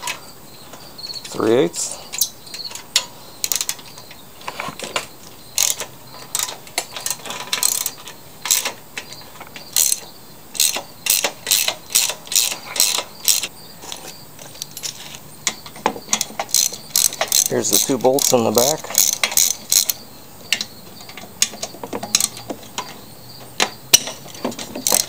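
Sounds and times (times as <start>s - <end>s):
ratchet wrench clicking: 5.6s - 8.7s, 9.8s - 10.0s, 10.6s - 13.5s, 16.4s - 20.0s.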